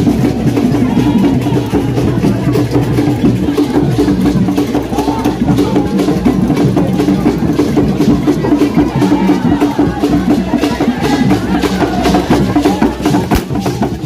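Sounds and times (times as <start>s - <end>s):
driving drums and percussion: 0.0s - 14.0s
voices singing: 8.2s - 14.0s.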